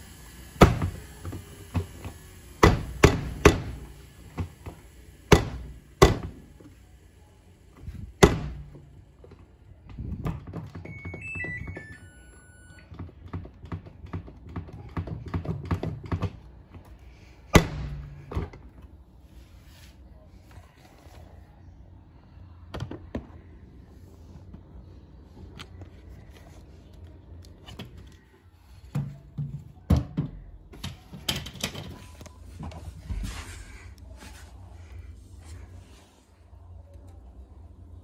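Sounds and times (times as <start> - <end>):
washing machine motor hum: 0.0 - 38.0
washing machine thuds: 0.6 - 4.5, 5.3 - 6.5, 8.1 - 8.9, 17.5 - 18.6
electronic beeps: 10.9 - 12.8.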